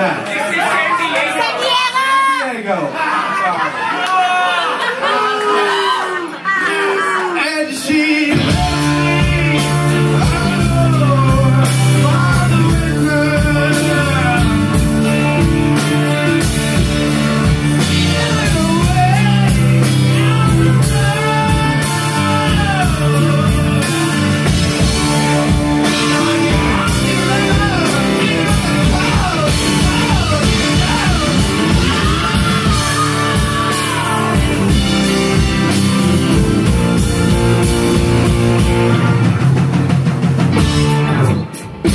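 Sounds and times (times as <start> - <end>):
person singing: 6.8 - 15.5, 17.8 - 35.8
drum kit: 8.2 - 41.9
electric bass: 8.3 - 41.9
electric guitar: 8.3 - 41.9.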